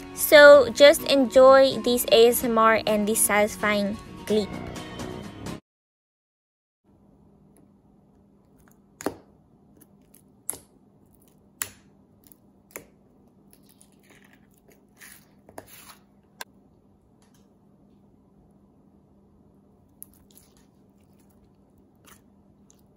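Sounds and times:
squishy slime crackles: 19.9 - 22.9.

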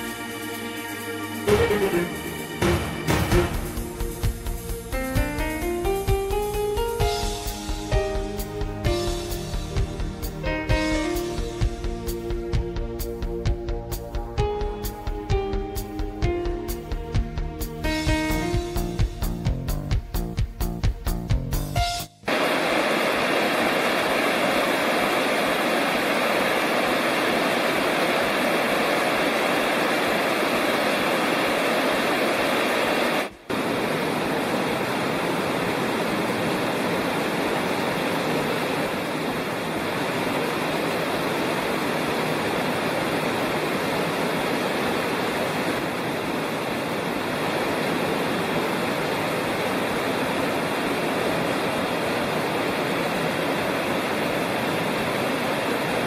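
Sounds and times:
creek water rushing: 0.0 - 4.3, 22.3 - 56.0.

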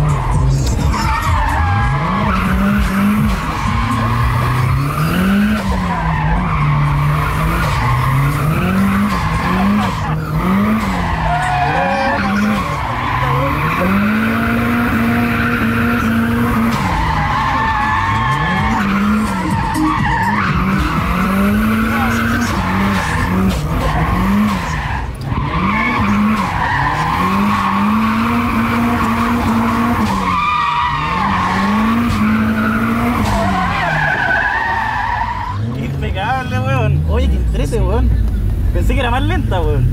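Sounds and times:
tyres squealing: 0.0 - 37.1
car engine revving: 0.0 - 39.9.

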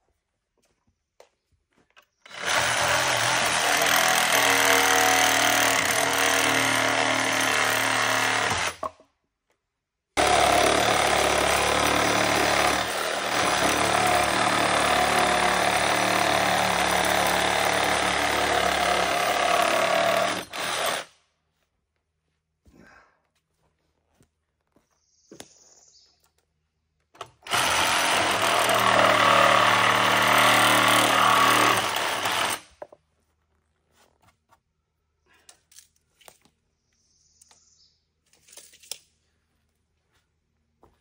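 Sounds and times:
impact driver hammering screws: 10.2 - 21.1, 27.2 - 32.9.

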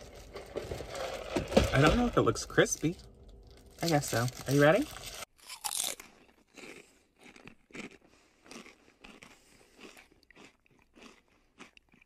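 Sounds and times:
crunchy bite into sandwich: 5.0 - 12.0
chewing with soft crunches: 5.4 - 12.0.

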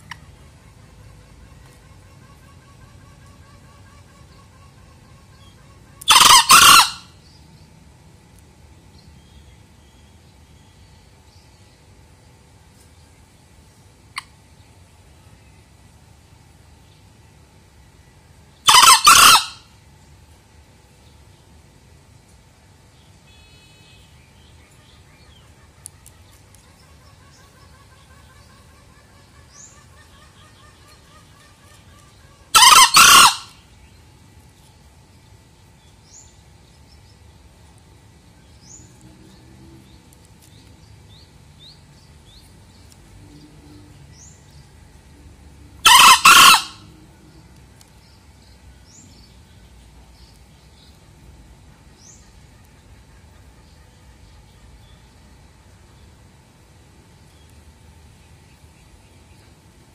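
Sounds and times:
junglefowl crowing: 0.0 - 7.2, 18.6 - 19.7, 26.9 - 33.6, 45.8 - 47.2
small birds chirping: 22.6 - 45.2, 45.8 - 59.9.

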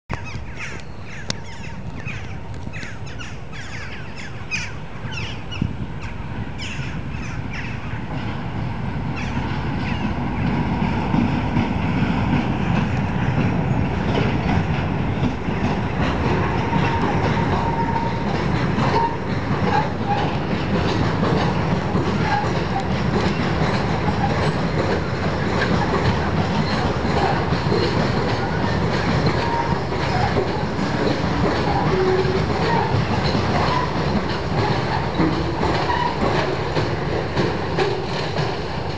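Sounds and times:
train rumbling: 0.1 - 38.9.

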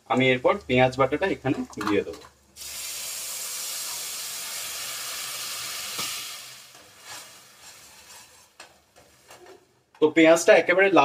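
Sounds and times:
food sizzling in a pan: 2.6 - 9.7
spoon scraping pan: 6.7 - 9.6.

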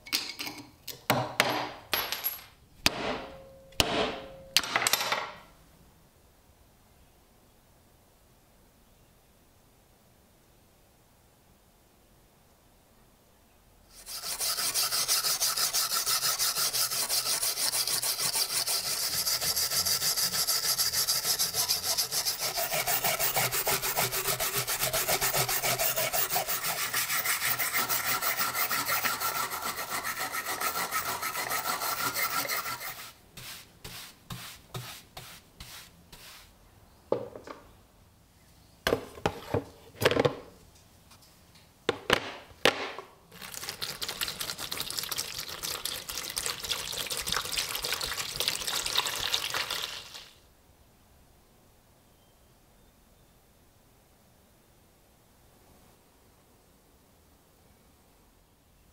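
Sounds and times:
short metal scrapes: 13.9 - 34.6
wire brush scrubbing metal: 14.0 - 36.4.

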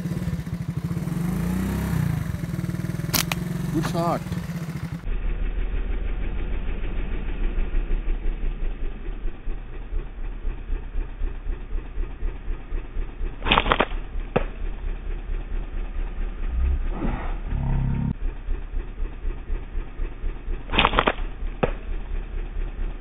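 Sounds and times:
engine idling: 0.0 - 23.0
sharp click: 3.1 - 3.5, 13.4 - 14.5, 20.7 - 21.8.

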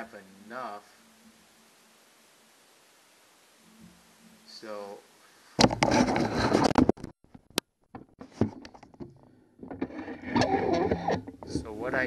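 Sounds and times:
sharp clicks and knocks: 5.6 - 11.7
handling scraping and rattling: 5.6 - 12.0.

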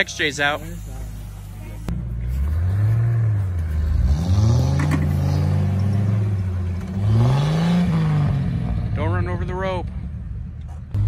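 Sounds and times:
suv engine revving: 0.3 - 11.0.

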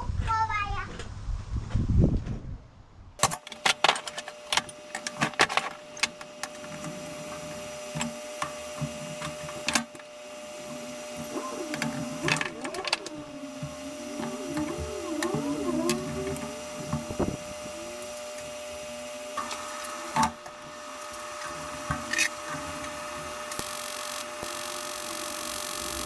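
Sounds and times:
steady hum: 3.2 - 26.0
wavering tone: 10.6 - 23.9.

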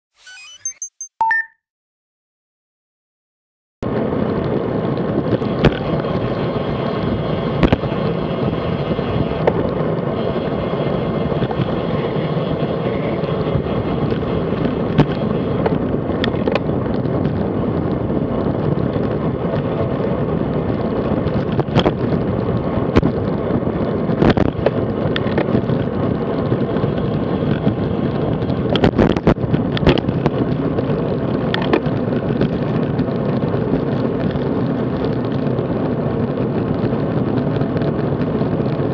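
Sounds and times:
bike tyre road noise: 3.8 - 38.9
wind rushing on microphone: 3.8 - 38.9
clicks and knocks from bike: 24.2 - 26.0, 28.4 - 33.1.

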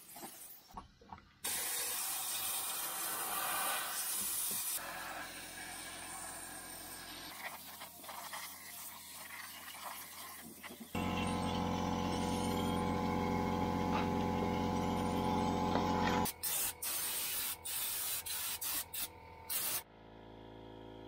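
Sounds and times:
spray gun hissing: 16.2 - 19.8.

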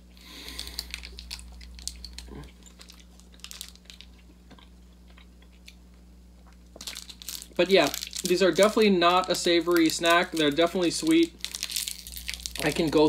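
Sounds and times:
candy wrapper rustling and clicking: 0.3 - 4.7, 6.7 - 13.0
faint chewing: 0.3 - 5.8.

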